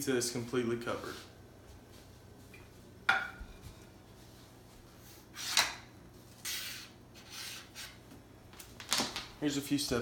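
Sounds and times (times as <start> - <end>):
plate clinking on countertop: 3.1 - 3.5.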